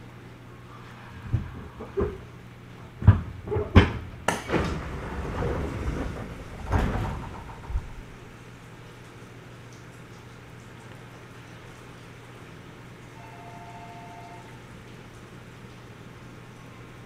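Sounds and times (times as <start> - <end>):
train doors knocking and clunking: 3.0 - 8.1.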